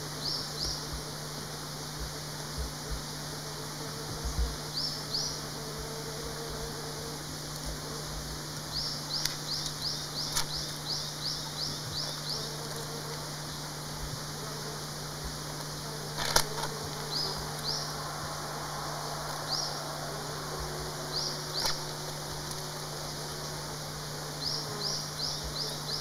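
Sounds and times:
steady low hum: 0:00.0 - 0:26.0
bird chirping: 0:08.7 - 0:12.6, 0:17.0 - 0:21.9, 0:24.4 - 0:26.0.

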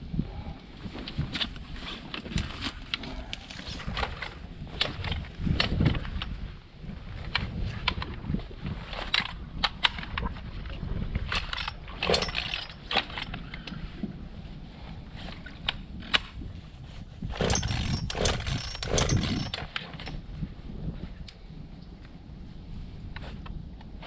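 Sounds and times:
chainsaw pull-cord yanks: 0:11.3 - 0:13.8, 0:17.3 - 0:20.2.

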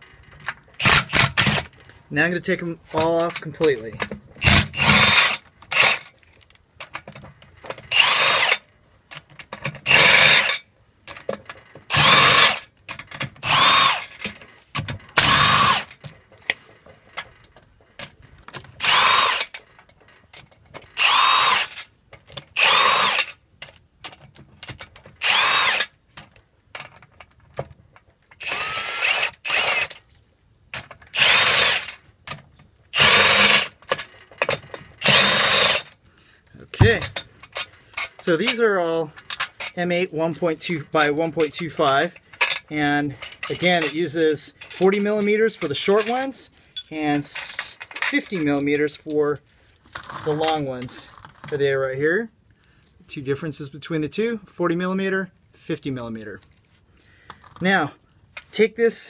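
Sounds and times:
cordless driver whirring: 0:04.4 - 0:06.0, 0:07.9 - 0:08.6, 0:09.9 - 0:10.6, 0:11.9 - 0:12.6, 0:13.4 - 0:14.1, 0:15.2 - 0:15.9, 0:18.8 - 0:19.5, 0:21.0 - 0:21.7, 0:22.6 - 0:23.3, 0:25.2 - 0:25.9, 0:28.4 - 0:30.0, 0:31.2 - 0:31.9, 0:33.0 - 0:33.7, 0:35.0 - 0:35.9.

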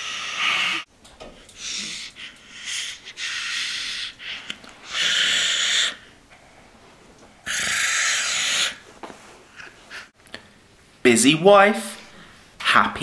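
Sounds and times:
loud breathy hisses: 0:00.0 - 0:00.9, 0:01.6 - 0:06.1, 0:07.4 - 0:08.8.

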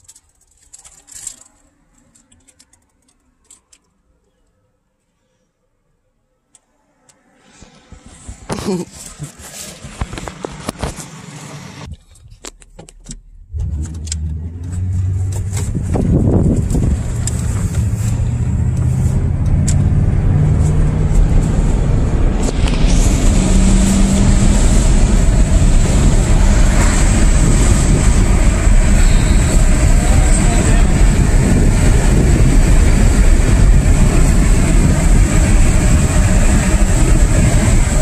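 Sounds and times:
road and wind noise: 0:00.0 - 0:38.0
car engine from inside: 0:13.5 - 0:38.0.

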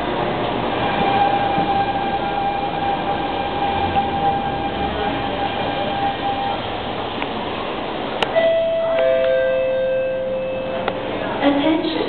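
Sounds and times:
public address click: 0:08.2 - 0:09.4, 0:10.8 - 0:11.1.

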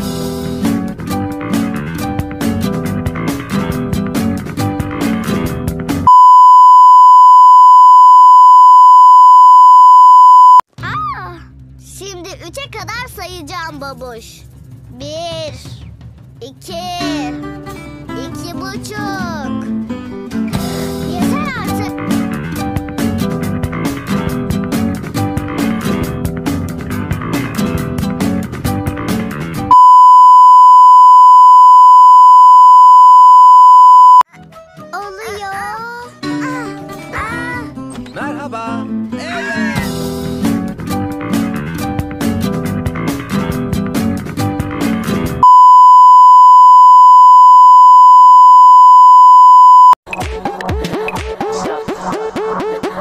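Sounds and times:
high-pitched censor beep: 0:06.1 - 0:10.6, 0:29.7 - 0:34.2, 0:45.4 - 0:50.0.

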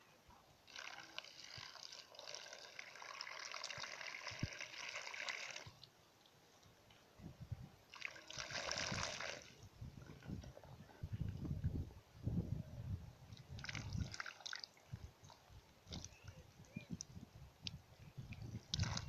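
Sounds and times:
water pouring and splashing: 0:00.7 - 0:05.9, 0:07.9 - 0:10.5, 0:13.3 - 0:16.2, 0:18.3 - 0:19.0.

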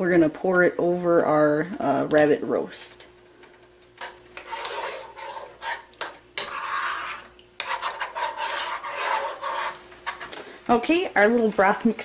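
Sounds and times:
utensil scraping frying pan: 0:04.0 - 0:12.0.

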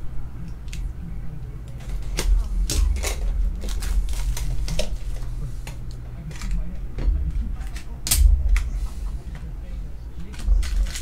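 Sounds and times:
shrink wrap crinkling and tearing: 0:01.8 - 0:06.6, 0:10.2 - 0:11.0.

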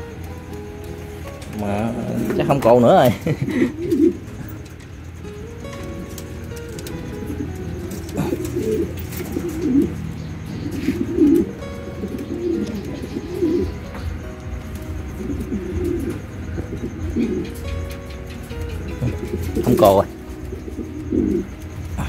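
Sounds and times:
pigeons cooing: 0:00.0 - 0:22.0.

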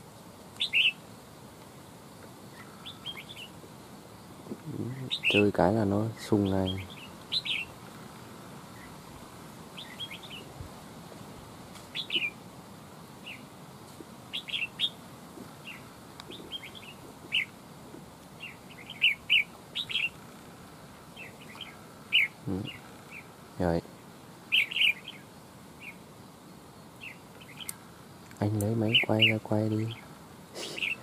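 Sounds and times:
bird chirping sharply: 0:00.6 - 0:01.0, 0:05.0 - 0:05.6, 0:06.4 - 0:07.8, 0:11.9 - 0:12.4, 0:18.4 - 0:20.2, 0:21.2 - 0:23.3, 0:24.5 - 0:25.2, 0:28.7 - 0:30.0.

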